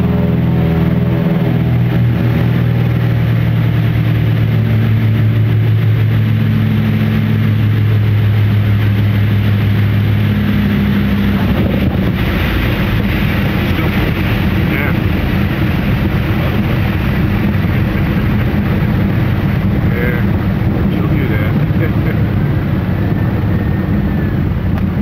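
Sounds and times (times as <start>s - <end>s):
twin piston engines droning: 0.0s - 25.0s.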